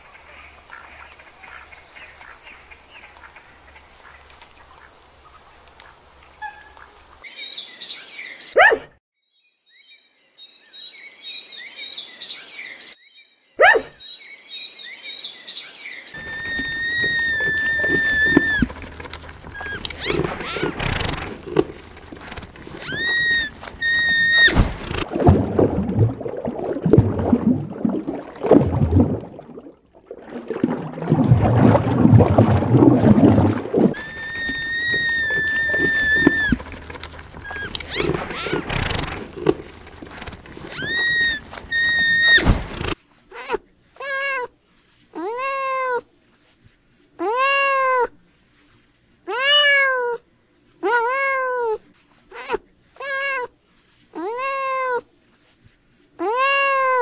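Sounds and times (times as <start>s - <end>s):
short high cries: 16.2s - 18.8s, 22.7s - 24.8s, 34.0s - 36.6s, 40.7s - 42.5s
rough rustling noise: 16.2s - 25.2s, 31.0s - 43.4s.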